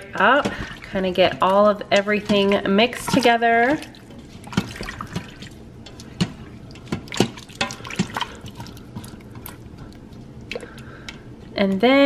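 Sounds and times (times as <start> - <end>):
wet sloshing of stew: 0.0 - 11.5.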